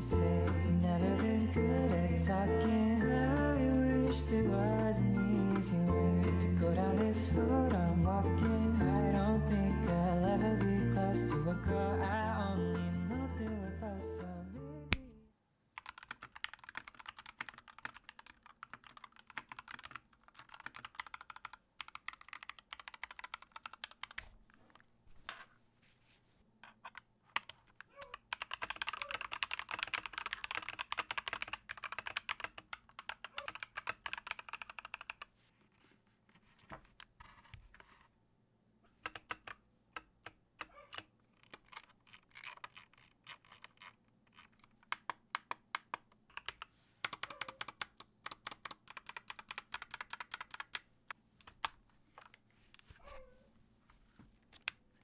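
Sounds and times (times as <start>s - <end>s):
typing on mechanical keyboard: 0.0s - 10.2s, 15.8s - 24.8s, 26.6s - 35.3s, 39.0s - 52.4s.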